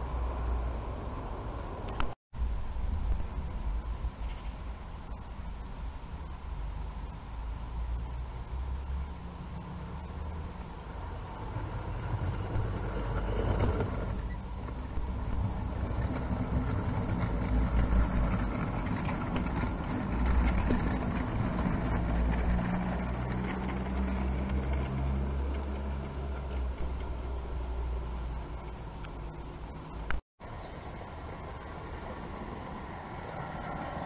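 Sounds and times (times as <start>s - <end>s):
model train rumbling on rails: 8.4s - 29.5s.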